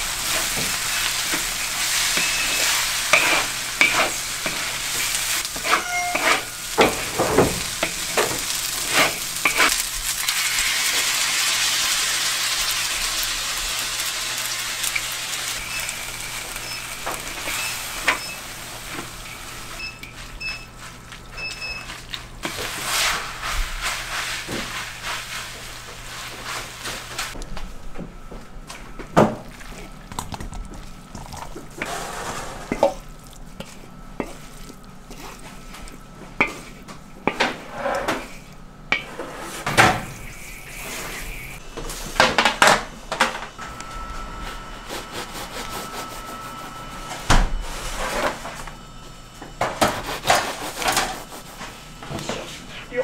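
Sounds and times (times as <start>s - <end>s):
utensils and dishes clattering: 0.0s - 11.0s.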